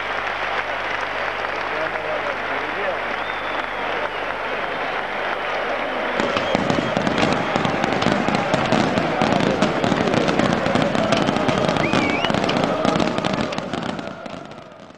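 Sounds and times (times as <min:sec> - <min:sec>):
crowd noise: 0:00.0 - 0:14.9
wavering whistle: 0:03.2 - 0:04.3, 0:11.7 - 0:12.5
firecrackers crackling: 0:06.1 - 0:14.9.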